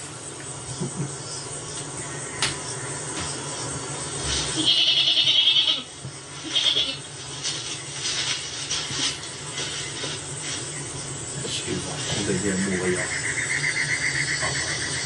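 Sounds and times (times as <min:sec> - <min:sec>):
goat bleating: 0:04.6 - 0:07.1.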